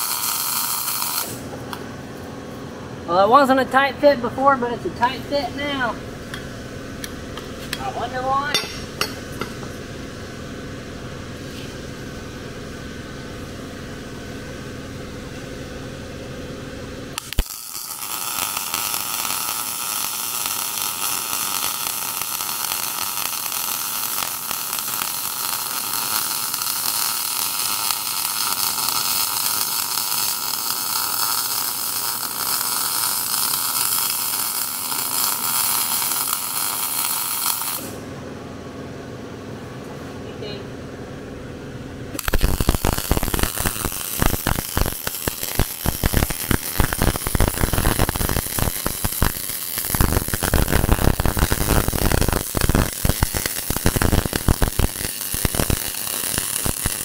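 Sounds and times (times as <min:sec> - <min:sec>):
welder arc crackling: 0:00.0 - 0:01.7, 0:17.1 - 0:38.0, 0:42.2 - 0:57.0
welder click: 0:42.2 - 0:57.0.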